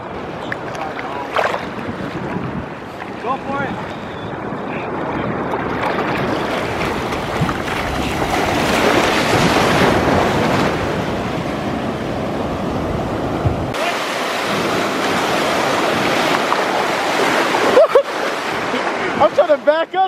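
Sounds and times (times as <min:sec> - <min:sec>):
wind buffeting microphone: 0:00.0 - 0:13.8
waves breaking: 0:00.0 - 0:20.0.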